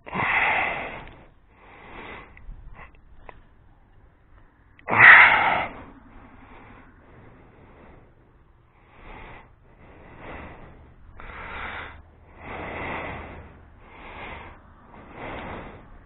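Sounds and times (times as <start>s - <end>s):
person breathing: 0.0s - 16.0s.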